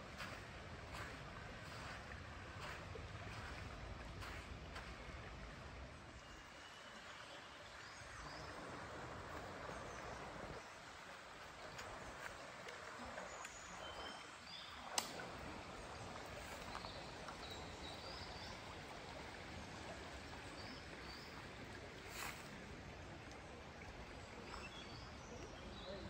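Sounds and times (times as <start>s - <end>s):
river running over rocks: 0.0s - 24.4s
sharp click: 14.9s - 15.2s.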